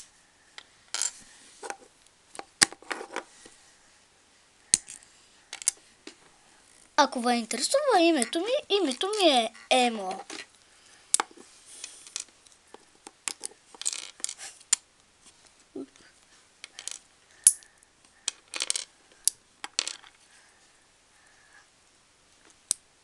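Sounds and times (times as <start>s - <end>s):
plastic bricks clicking apart: 13.0s - 14.8s, 16.6s - 20.1s
bricks clattering on wooden table: 19.7s - 20.1s.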